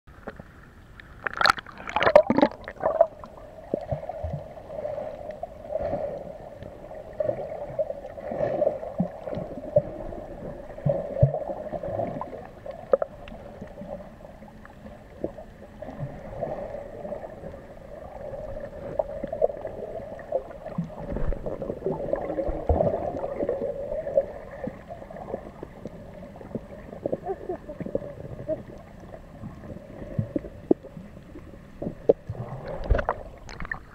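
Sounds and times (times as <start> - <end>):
underwater low hum: 0.1 - 33.9
splashing water: 1.2 - 4.5, 31.9 - 33.9
gurgling bubbles: 1.2 - 33.9.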